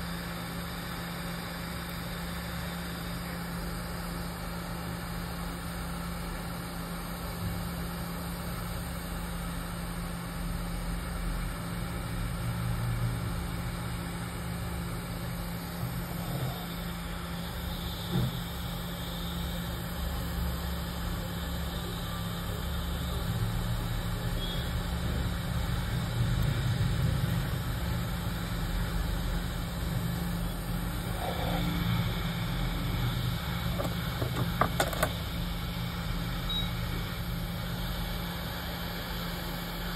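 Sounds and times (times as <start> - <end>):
hot air blower rushing: 30.7 - 35.2.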